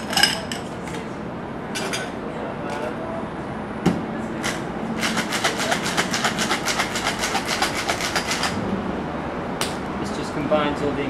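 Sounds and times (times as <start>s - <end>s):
ice rattling in shaker: 5.0s - 8.5s.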